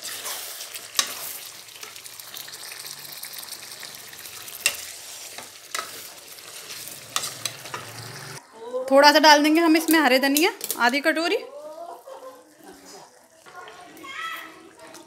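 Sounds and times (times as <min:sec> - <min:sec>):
curry sizzling in a pan: 0:00.0 - 0:08.4, 0:09.4 - 0:15.0
ladle stirring and scraping: 0:00.0 - 0:08.4, 0:12.6 - 0:15.0.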